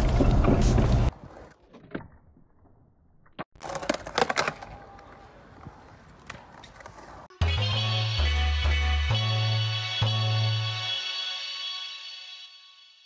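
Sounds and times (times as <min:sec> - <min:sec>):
skateboard clacking and scraping: 0:03.6 - 0:07.4
background music: 0:07.3 - 0:12.9.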